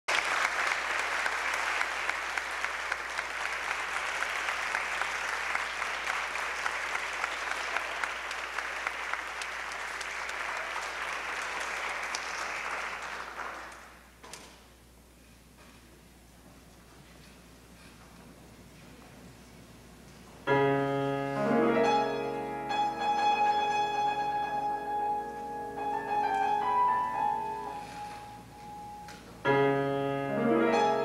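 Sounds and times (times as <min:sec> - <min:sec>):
audience applauding: 0:00.1 - 0:14.2.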